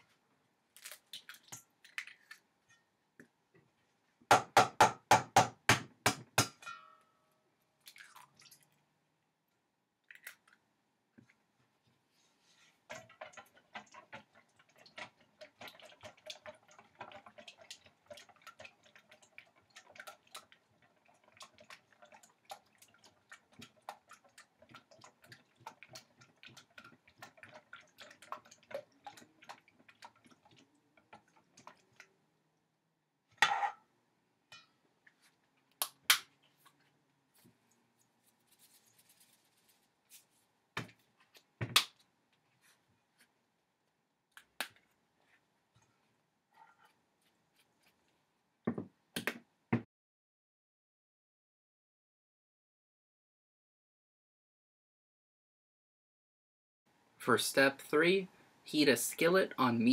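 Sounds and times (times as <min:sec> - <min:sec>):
whisk beating eggs in metal bowl: 0:12.9 - 0:31.8.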